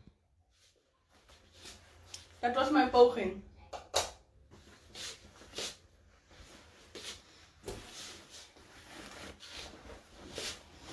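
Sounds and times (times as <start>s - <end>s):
faint handling scuffs and knocks: 4.5s - 10.9s.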